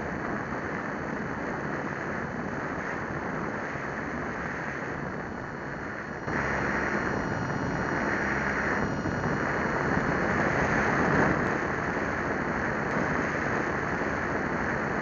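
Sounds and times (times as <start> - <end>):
airflow rushing: 5.6 - 13.9.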